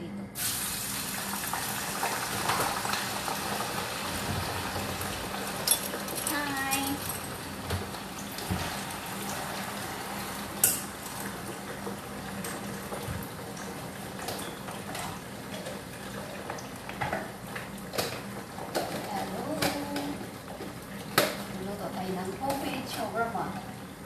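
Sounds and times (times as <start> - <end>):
potatoes sizzling in oil: 0.4 - 5.6
utensils and dishes clinking: 5.5 - 7.5, 14.2 - 15.7.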